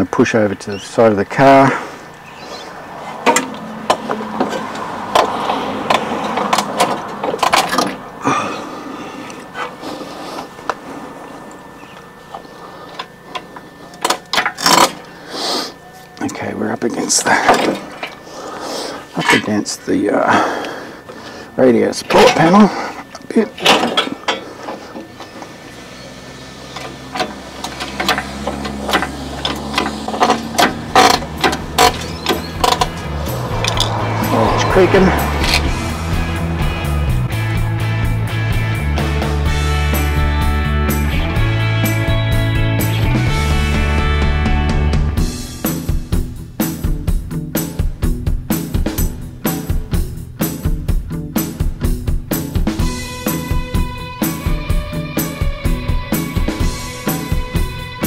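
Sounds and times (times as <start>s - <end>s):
metallic clicks and creaks of crane: 3.2s - 8.0s, 23.1s - 34.0s, 35.3s - 35.8s
steady low hum: 8.0s - 41.7s
metallic clanks of crane chains: 23.5s - 24.5s.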